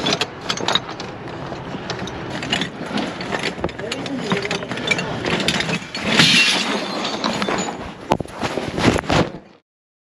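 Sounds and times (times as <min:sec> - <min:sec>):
sharp metal clanks: 0:01.8 - 0:07.8
metal pieces clattering in tub: 0:02.3 - 0:07.8.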